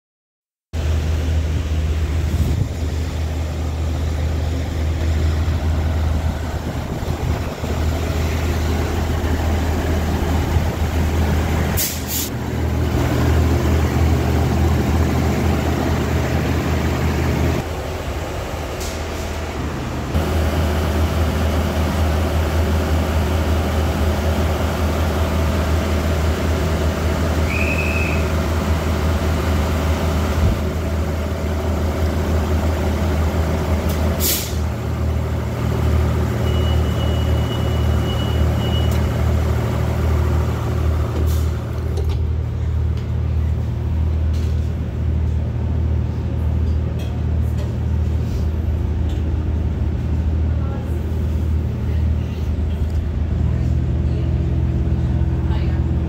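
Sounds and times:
diesel train engine drone: 0.8s - 56.0s
rail running noise: 0.8s - 56.0s
air hiss: 11.8s - 12.3s, 34.2s - 34.6s.

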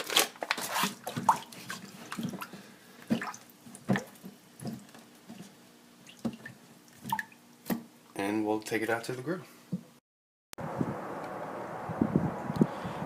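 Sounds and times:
water splashing and dripping: 1.0s - 7.8s.

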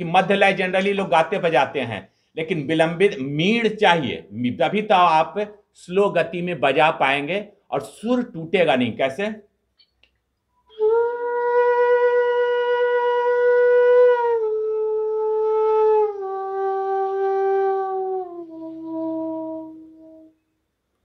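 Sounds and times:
bamboo flute slow notes: 10.6s - 20.5s.

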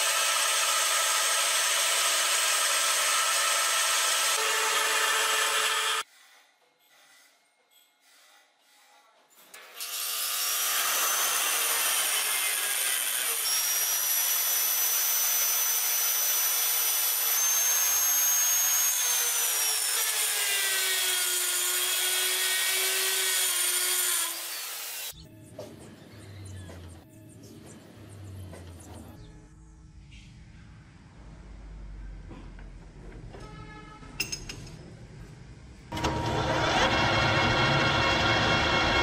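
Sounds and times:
rotary tool grinding metal: 0.0s - 6.1s, 9.4s - 25.2s.

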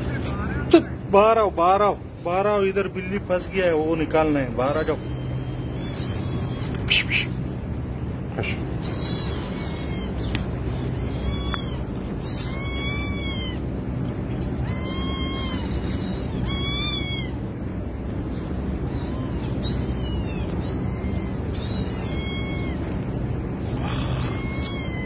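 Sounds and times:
kitten meowing in distress: 4.7s - 6.9s, 8.8s - 13.7s, 14.6s - 17.4s, 18.8s - 23.2s, 23.8s - 25.0s.

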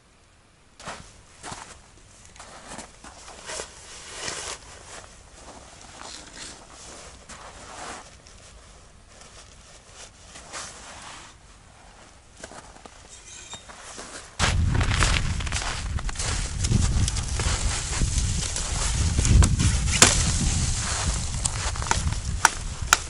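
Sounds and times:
jacket rustling: 0.8s - 23.0s
boots crunching on snow: 13.9s - 23.0s.

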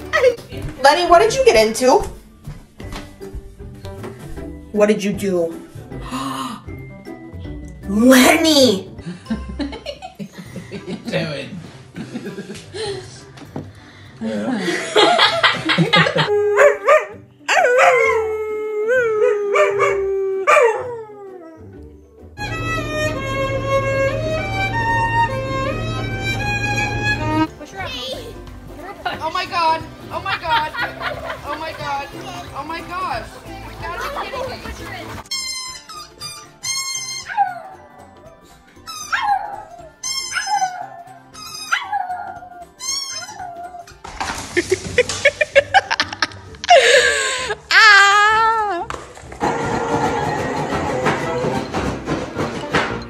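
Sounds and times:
dog howling: 16.2s - 21.8s, 39.1s - 43.9s
violin slow melody: 22.4s - 27.5s
rubber squeaky toy squeaks: 35.2s - 37.7s, 38.8s - 42.1s, 42.8s - 43.9s.

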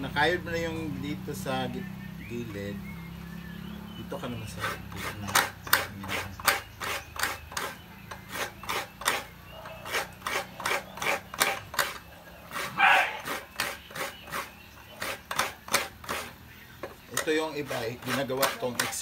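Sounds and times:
coconut rasping on grater blade: 4.2s - 19.0s.

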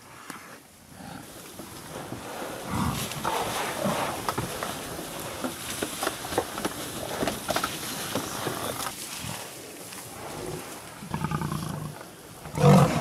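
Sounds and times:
lions growling: 0.9s - 5.4s, 10.1s - 13.0s.

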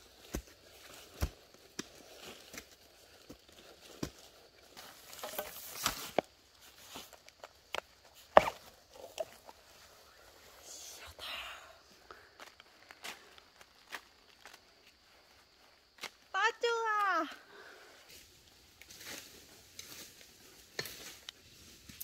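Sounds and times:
hands scraping soil and leaves: 0.0s - 16.3s, 18.0s - 22.0s.

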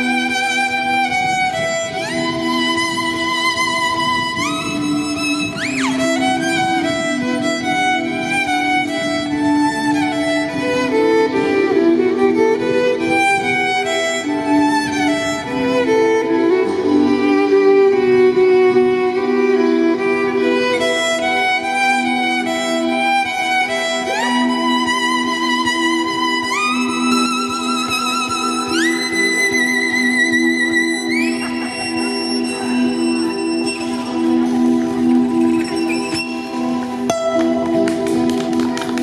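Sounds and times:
violin melody through loudspeaker: 0.0s - 39.0s.

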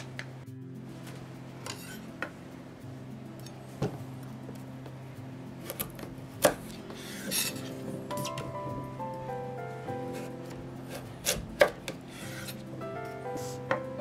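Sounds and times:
knife cutting carrot on board: 5.6s - 8.5s, 10.1s - 12.7s.

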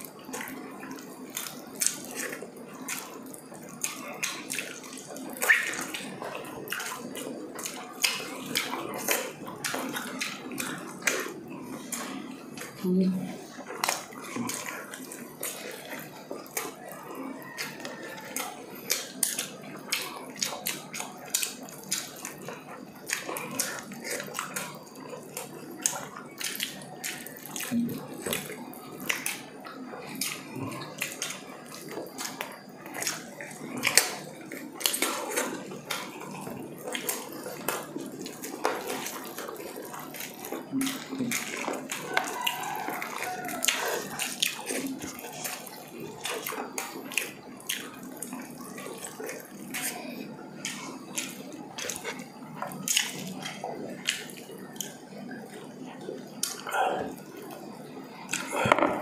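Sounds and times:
wet chewing and lip smacks: 0.0s - 12.8s, 13.4s - 58.7s
fingers pulling meat off bones: 39.4s - 45.6s.

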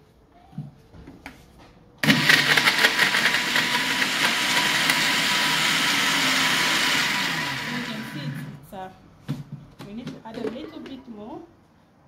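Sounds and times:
blender running: 2.0s - 8.6s.

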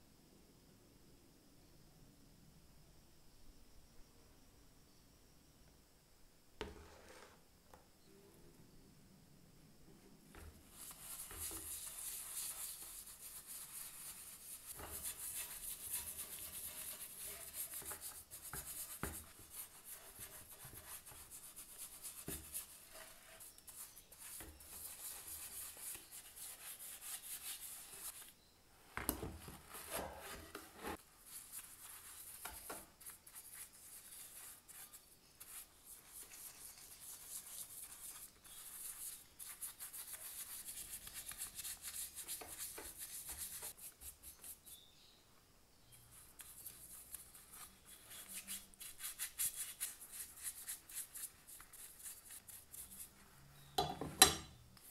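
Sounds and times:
paintbrush scrubbing metal: 10.6s - 28.3s, 29.7s - 44.8s.

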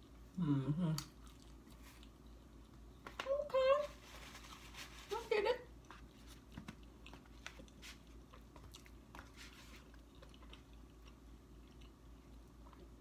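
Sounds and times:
person chewing food: 0.0s - 3.1s, 5.7s - 13.0s.

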